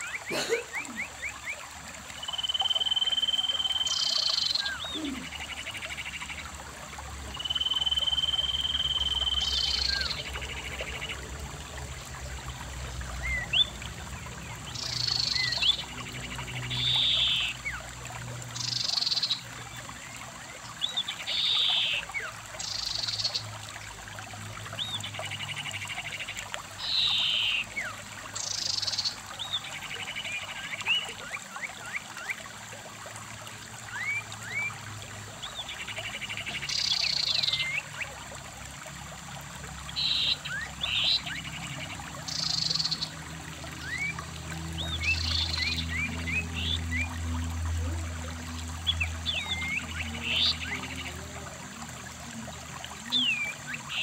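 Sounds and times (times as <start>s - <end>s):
thin rising bird chirps: 0.0s - 6.4s, 7.4s - 11.0s, 24.8s - 32.3s
stream running over rocks: 0.0s - 54.0s.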